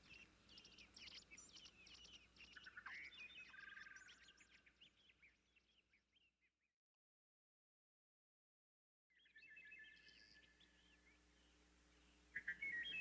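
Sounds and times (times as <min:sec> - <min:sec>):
songbird chirps and trills: 0:00.0 - 0:06.6, 0:09.1 - 0:13.0.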